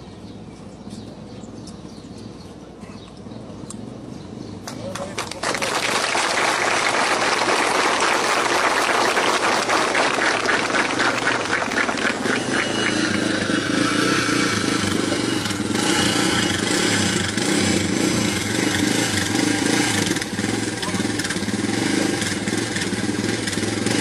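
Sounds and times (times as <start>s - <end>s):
motorcycle engine idling: 12.2s - 24.0s.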